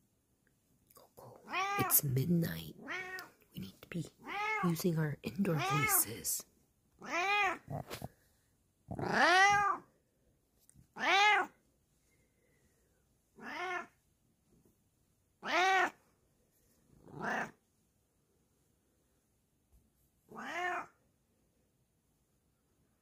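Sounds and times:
cat meowing: 1.4 - 1.9, 2.8 - 3.3, 4.2 - 4.6, 7.0 - 8.0, 8.9 - 9.9, 11.0 - 11.5, 13.4 - 14.0, 15.4 - 16.0, 17.1 - 17.5, 20.3 - 21.0.

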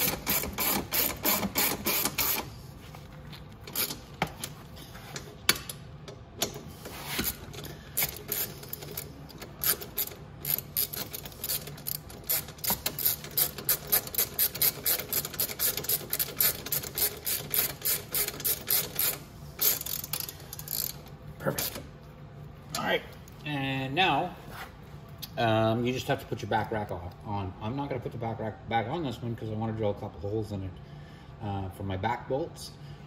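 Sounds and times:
ratchet wrench clicking: 0.0 - 2.5, 7.2 - 21.1.

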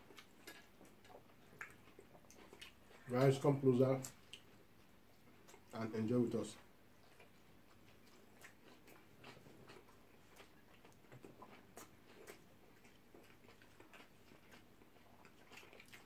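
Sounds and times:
people chewing food: 0.0 - 16.0.

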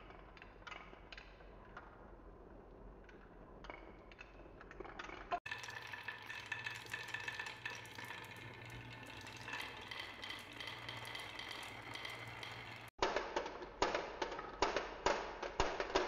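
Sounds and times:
marbles rattling on wooden track: 6.0 - 16.0.

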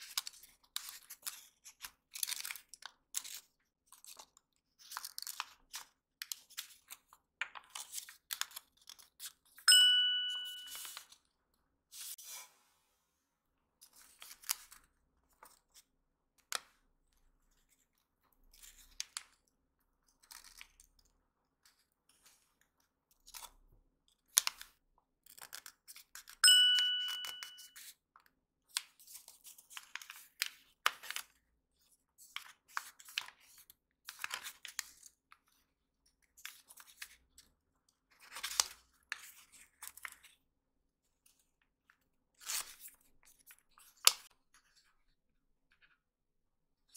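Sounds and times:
paper crinkling and rustling: 0.0 - 9.6
bell-like ding: 9.7 - 11.0, 26.4 - 27.8.

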